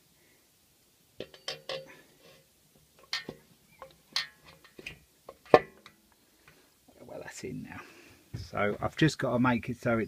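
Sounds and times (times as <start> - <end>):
sharp metal clicks and knocks: 3.0 - 6.0.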